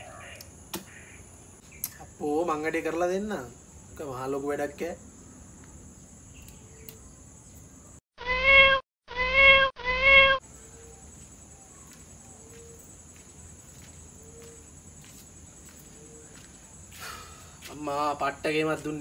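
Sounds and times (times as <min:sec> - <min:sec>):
crickets droning: 0:00.0 - 0:08.0, 0:10.4 - 0:19.0
cat meowing: 0:08.2 - 0:10.4.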